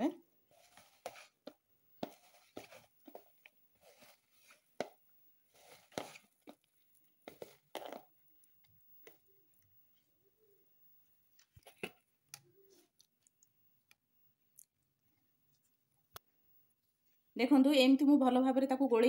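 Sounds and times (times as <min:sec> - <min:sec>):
hand mixing batter in plastic bowl: 0:00.4 - 0:10.3.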